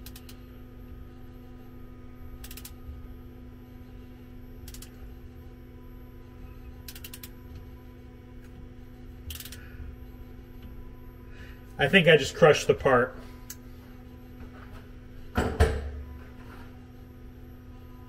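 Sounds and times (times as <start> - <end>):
ratchet wrench clicking: 0.0 - 0.4, 2.4 - 2.8, 4.7 - 5.0, 6.9 - 7.3, 9.3 - 9.6
steady hum: 0.0 - 18.0.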